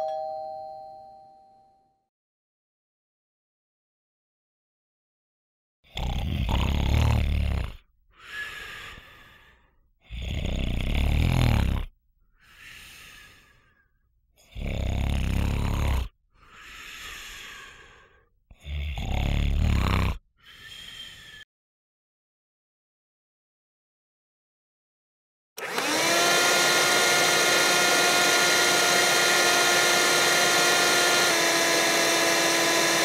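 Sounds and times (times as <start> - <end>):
man snoring: 5.9 - 12.0, 14.4 - 21.4, 25.7 - 33.0
whistling breath out: 20.4 - 21.5.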